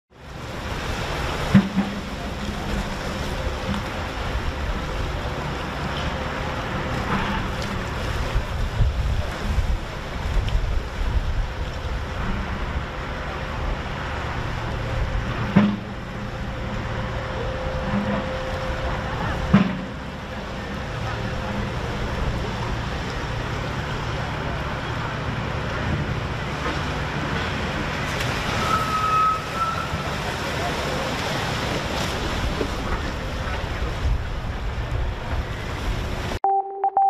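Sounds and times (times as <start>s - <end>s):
choppy sea washing: 0.1s - 36.4s
wind on microphone: 7.1s - 13.9s.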